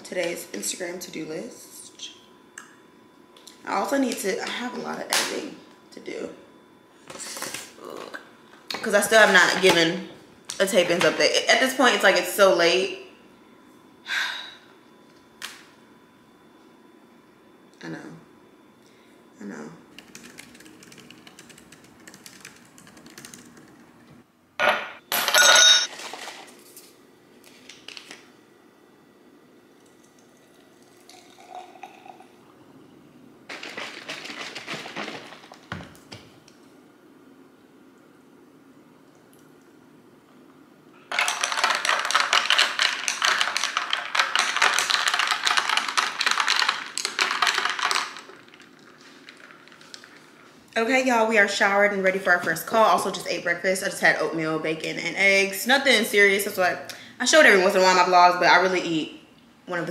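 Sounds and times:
typing on a laptop keyboard: 0:20.0 - 0:23.8
ice cubes clinking into a glass: 0:41.1 - 0:48.3.

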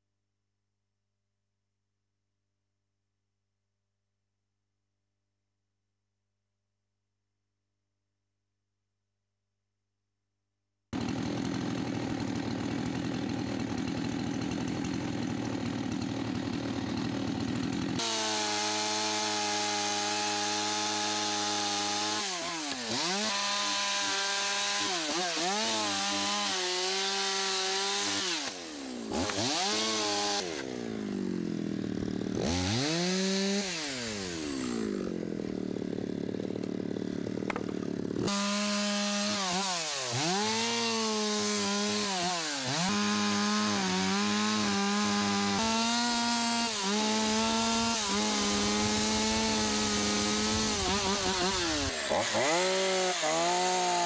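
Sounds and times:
chainsaw cutting wood: 0:11.0 - 0:54.0.

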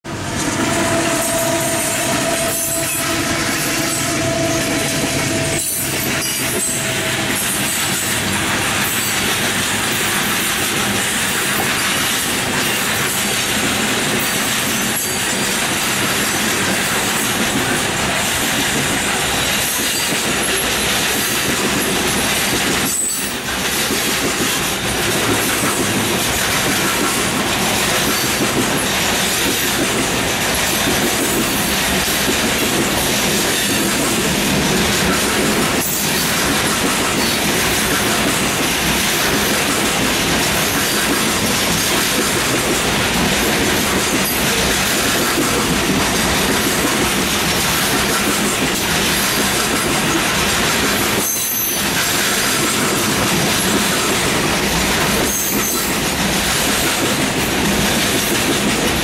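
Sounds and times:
train wheels on rails: 0:00.0 - 0:59.0
held high tone: 0:00.1 - 0:07.9.

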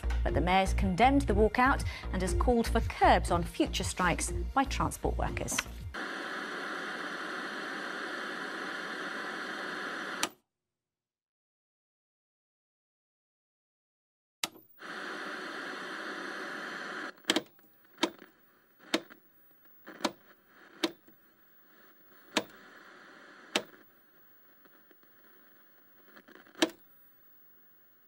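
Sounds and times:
loud static hiss: 0:05.5 - 0:10.2, 0:14.7 - 0:28.0
click: 0:14.4 - 0:14.7, 0:23.5 - 0:23.8
faint hiss: 0:14.8 - 0:17.2.

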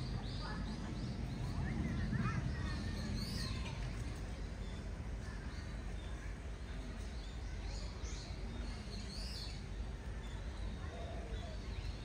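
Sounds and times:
outdoor background noise: 0:00.0 - 0:12.0.

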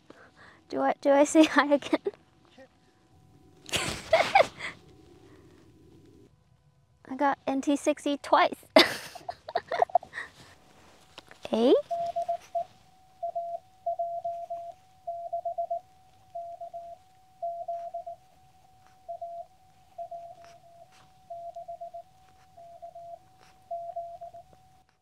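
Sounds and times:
faint steady tone: 0:00.0 - 0:25.0
morse code beeps: 0:11.5 - 0:24.8.

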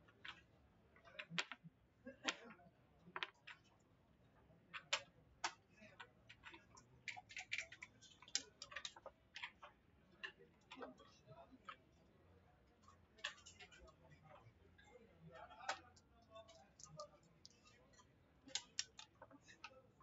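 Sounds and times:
checkers and dice clicking: 0:01.1 - 0:01.6, 0:06.3 - 0:09.7, 0:13.2 - 0:14.0, 0:15.6 - 0:19.7.

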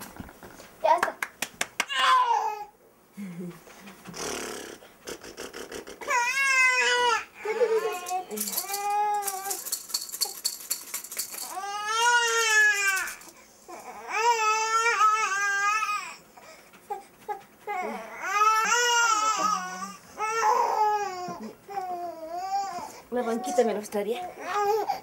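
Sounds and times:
newborn baby crying: 0:01.9 - 0:02.7, 0:06.0 - 0:09.6, 0:11.4 - 0:16.2, 0:16.9 - 0:23.6, 0:24.2 - 0:25.0.

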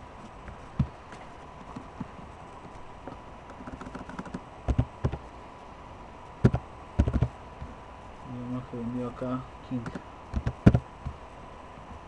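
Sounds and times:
faint high tone hum: 0:00.0 - 0:12.0
keyboard and mouse clicks: 0:03.5 - 0:05.2, 0:06.4 - 0:07.3, 0:09.8 - 0:11.2.

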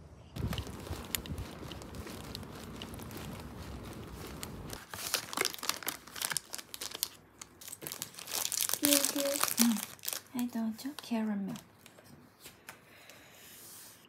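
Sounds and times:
low street rumble: 0:00.0 - 0:04.8
cardboard box crinkling: 0:00.4 - 0:12.0.

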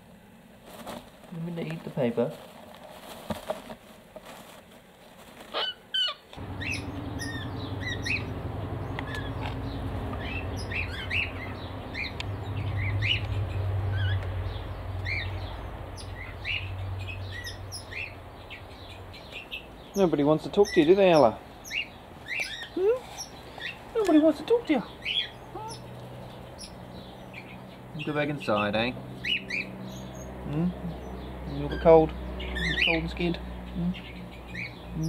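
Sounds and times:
faint rustles: 0:00.5 - 0:05.9
small birds chirping: 0:05.5 - 0:35.0
low steady hum: 0:06.4 - 0:20.6.

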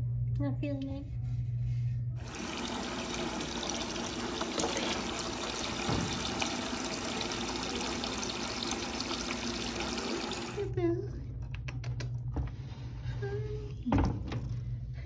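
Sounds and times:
tap water filling a bucket: 0:02.2 - 0:10.7.

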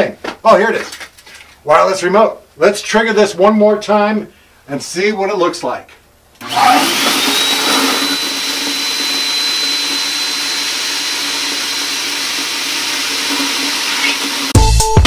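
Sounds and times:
blower motor high whine: 0:06.4 - 0:14.5.

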